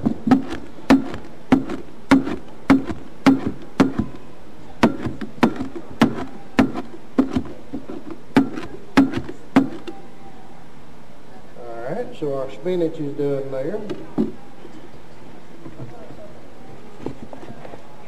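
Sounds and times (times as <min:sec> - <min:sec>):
knife chopping on cutting board: 0:00.1 - 0:04.1, 0:08.4 - 0:09.8.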